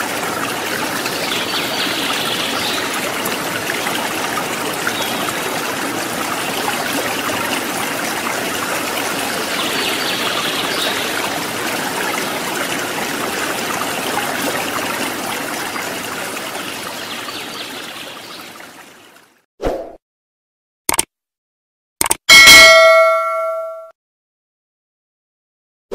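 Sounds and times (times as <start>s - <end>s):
rushing running water: 0.0s - 19.4s.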